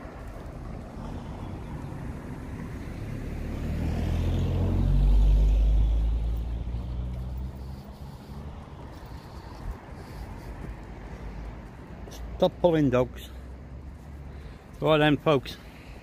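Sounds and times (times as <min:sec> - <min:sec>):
vehicle driving past: 0:00.0 - 0:11.6.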